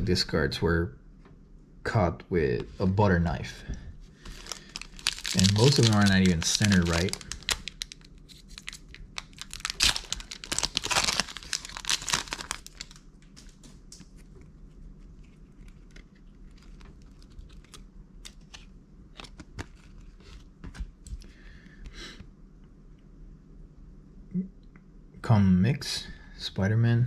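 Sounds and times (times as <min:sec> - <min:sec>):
foil wrapper crinkling: 0:04.2 - 0:14.4, 0:15.0 - 0:21.2.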